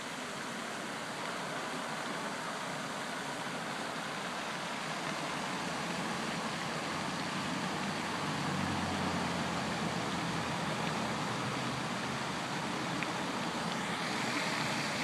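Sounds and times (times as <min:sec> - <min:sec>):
road traffic noise: 0:00.0 - 0:15.0
vehicle humming: 0:05.2 - 0:15.0.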